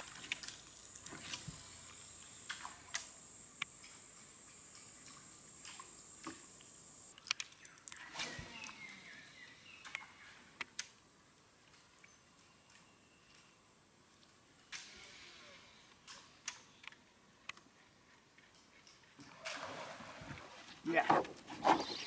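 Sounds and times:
insects droning: 0:00.0 - 0:07.2.

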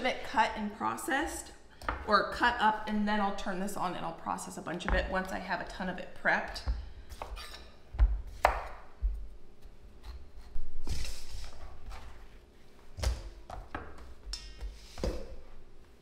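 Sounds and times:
knife chopping on wooden board: 0:06.5 - 0:09.2.

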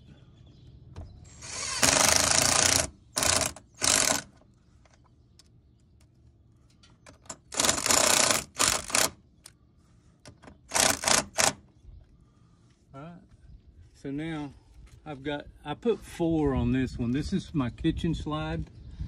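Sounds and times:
impact driver driving bolts into wood: 0:01.4 - 0:04.3.

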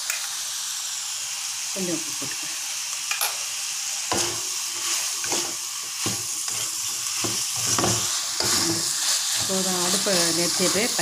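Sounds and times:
beans sizzling in wok: 0:00.0 - 0:11.0
spatula scraping and knocking wok: 0:04.0 - 0:11.0.

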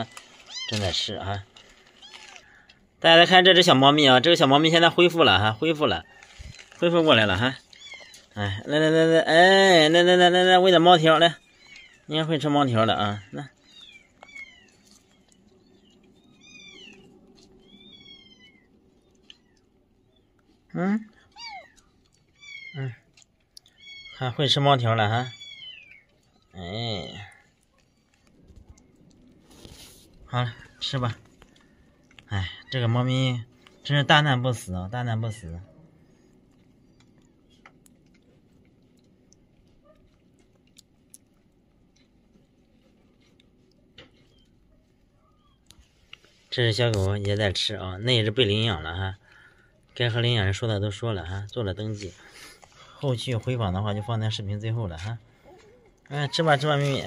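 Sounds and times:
kitten licking and smacking: 0:13.6 - 0:24.2, 0:35.9 - 0:46.3
kitten meowing: 0:17.7 - 0:18.7, 0:21.3 - 0:21.8.

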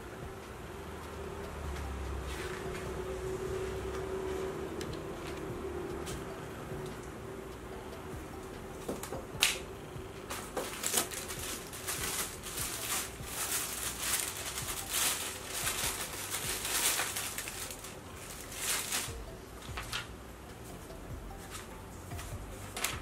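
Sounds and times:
plastic and paper crinkling: 0:10.3 - 0:20.1, 0:21.4 - 0:23.0.

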